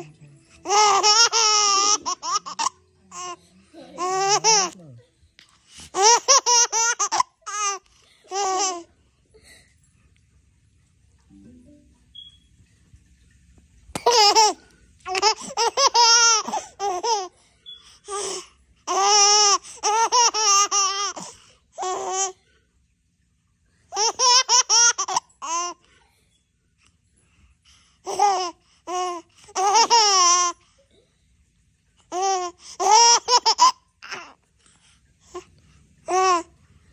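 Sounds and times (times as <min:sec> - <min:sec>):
baby giggling: 0:00.6 - 0:04.8, 0:06.0 - 0:08.8, 0:14.0 - 0:17.3, 0:18.1 - 0:22.2, 0:24.0 - 0:25.7, 0:29.6 - 0:30.5, 0:32.1 - 0:34.3.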